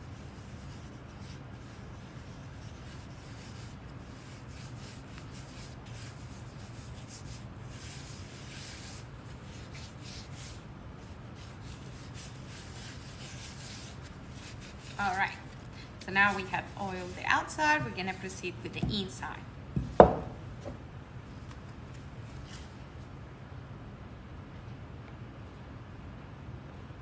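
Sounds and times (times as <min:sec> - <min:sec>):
steady low hum: 0:00.0 - 0:27.0
gloved hands rubbing wood: 0:00.1 - 0:20.8.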